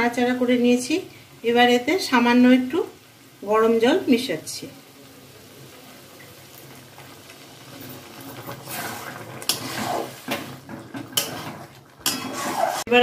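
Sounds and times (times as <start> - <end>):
hot water pouring into curry: 1.1 - 12.8
spatula scraping metal pan: 8.5 - 13.0.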